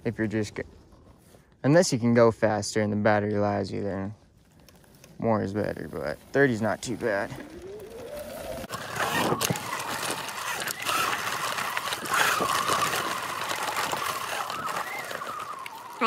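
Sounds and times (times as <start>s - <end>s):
tyre and wind rush: 5.8s - 16.0s
electric motor whine: 7.0s - 16.0s.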